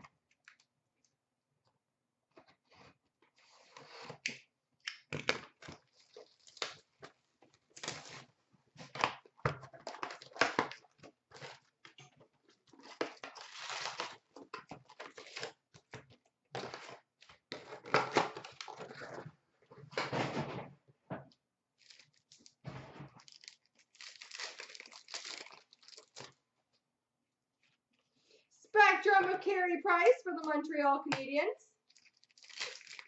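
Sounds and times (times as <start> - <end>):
cardboard tearing: 12.8 - 15.6, 23.2 - 26.4, 31.9 - 33.0
wrappers rustling: 21.8 - 26.4, 31.9 - 33.0.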